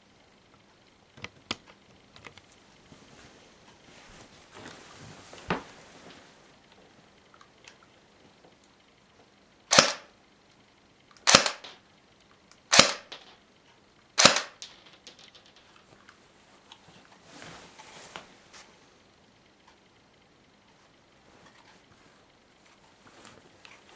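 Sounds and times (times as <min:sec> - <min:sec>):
airsoft pistol shots: 0:09.7 - 0:10.1, 0:11.2 - 0:11.8, 0:12.7 - 0:13.2, 0:14.2 - 0:14.7.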